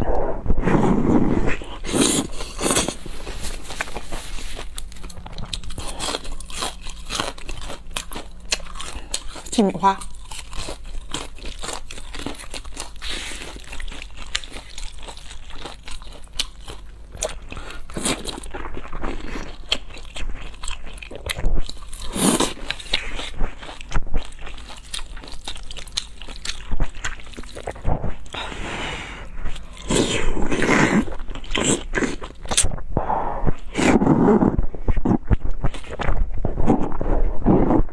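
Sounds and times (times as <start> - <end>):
wet chewing and mouth clicks: 1.6 - 28.4, 29.4 - 32.8, 33.5 - 37.2
noodle slurping: 27.1 - 37.9.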